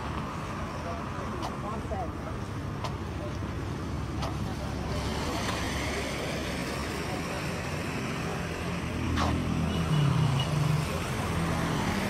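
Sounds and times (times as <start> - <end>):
tyres hissing on wet road: 0.0 - 9.5.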